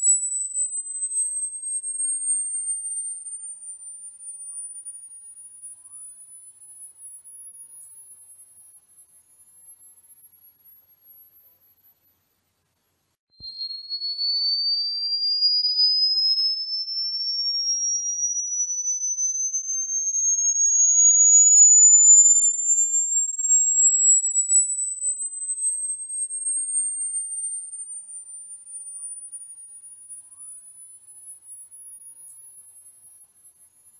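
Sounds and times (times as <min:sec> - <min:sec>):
rising sine tone sweep: 0:13.4 - 0:27.7
high sine tone: 0:13.4 - 0:28.1.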